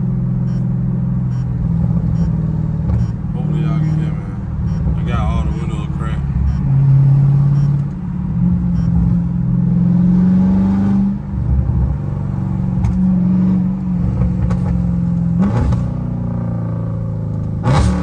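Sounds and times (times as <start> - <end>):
car exhaust droning while cruising: 0.0 - 10.3.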